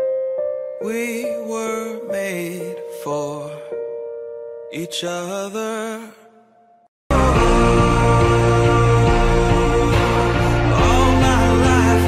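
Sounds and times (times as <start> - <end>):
held synth chords: 7.1 - 12.0.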